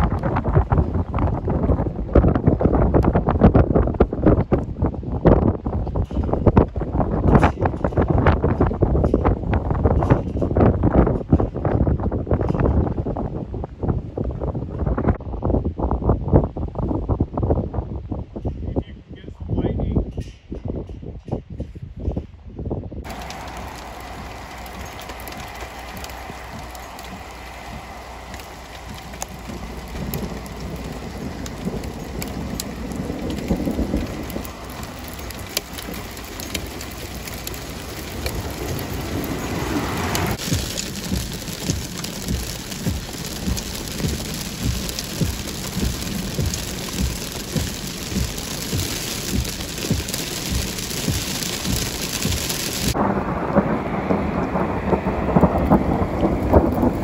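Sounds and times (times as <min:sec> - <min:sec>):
steady rain: 0:00.0 - 0:09.3, 0:23.0 - 0:57.0
thunder rumbling: 0:23.1 - 0:57.0.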